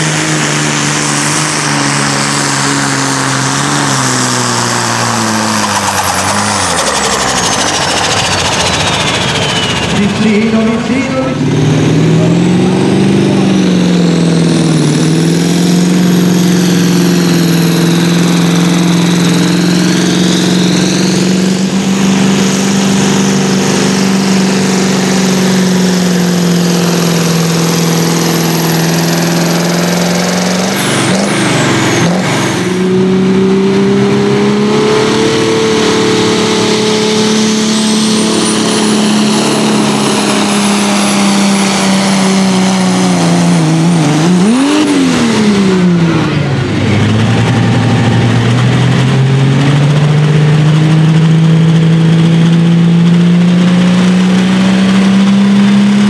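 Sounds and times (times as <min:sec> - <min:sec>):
tractor engine at full throttle: 0:00.0 - 0:56.0
high whistle: 0:05.6 - 0:10.2.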